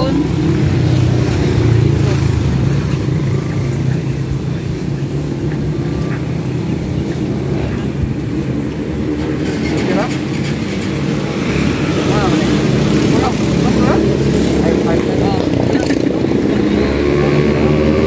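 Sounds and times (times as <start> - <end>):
faint voices talking: 11.8 - 16.4.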